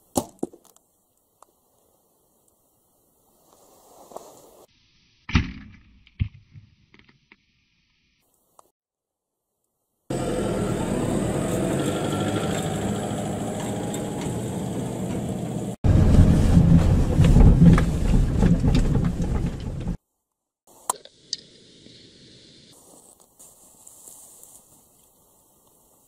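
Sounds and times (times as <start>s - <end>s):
deep engine rumble: 10.1s - 20.0s
vehicle engine droning: 10.1s - 20.0s.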